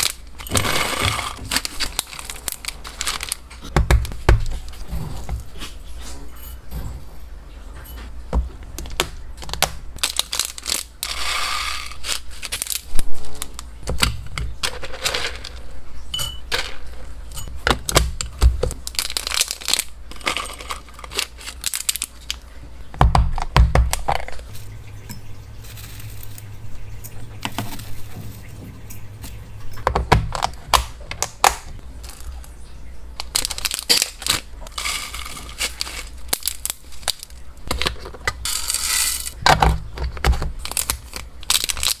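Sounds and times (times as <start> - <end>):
pellets rattling into glass cup: 0.0 - 3.4, 10.0 - 13.6, 14.6 - 15.6, 18.8 - 22.4, 33.2 - 39.4, 40.6 - 42.0
plastic bags crinkling: 0.0 - 4.8, 8.9 - 15.7, 16.5 - 22.6, 25.5 - 26.6, 30.2 - 42.0
dried herbs rustling: 25.5 - 28.6, 33.2 - 37.8.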